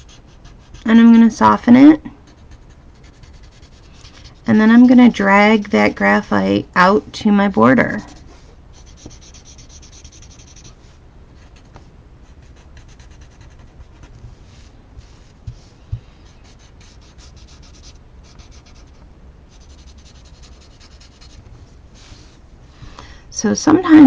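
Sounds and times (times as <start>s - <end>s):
blending stump scratching on paper: 0.0s - 1.2s, 2.2s - 5.2s, 7.8s - 21.4s.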